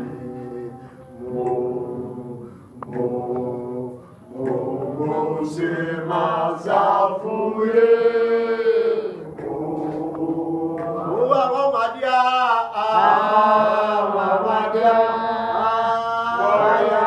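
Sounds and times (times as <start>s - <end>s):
man singing worship song: 0.0s - 17.0s.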